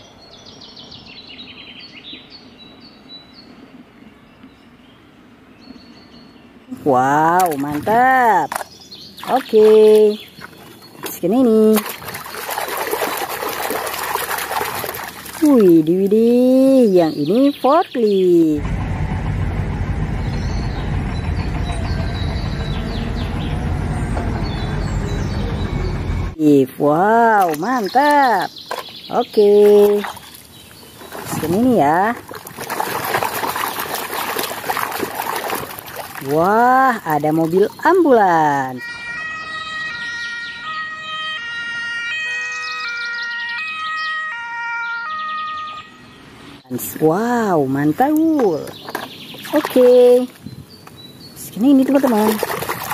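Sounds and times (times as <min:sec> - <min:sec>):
diesel engine drone: 0:18.5 - 0:26.4
ambulance two-tone siren: 0:38.8 - 0:46.6.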